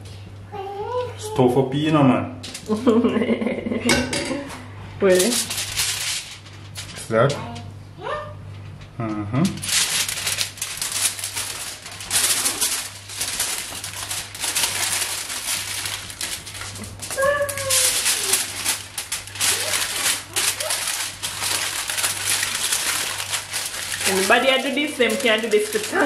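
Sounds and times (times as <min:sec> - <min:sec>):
aluminium foil crinkling: 0:02.4 - 0:03.0, 0:05.0 - 0:07.7, 0:09.4 - 0:26.0.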